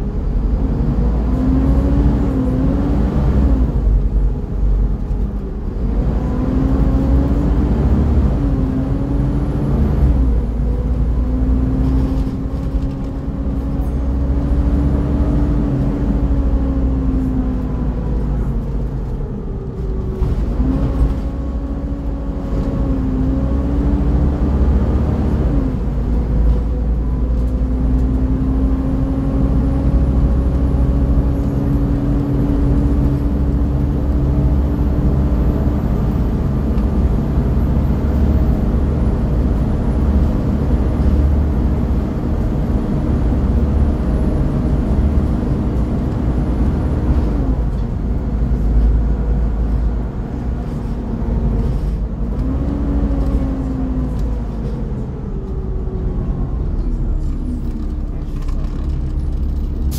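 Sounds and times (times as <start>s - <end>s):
bus engine rumble with whine: 0.0s - 59.9s.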